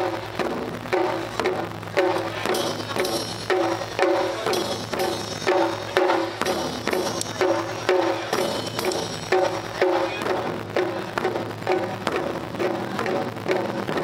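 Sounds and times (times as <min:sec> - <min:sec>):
taiko drums playing: 0:00.0 - 0:14.0.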